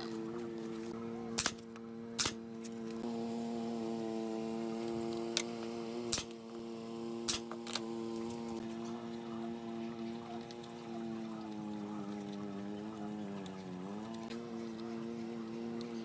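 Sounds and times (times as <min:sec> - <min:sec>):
nail gun firing: 0:01.4 - 0:01.6, 0:02.2 - 0:02.4, 0:06.1 - 0:06.4.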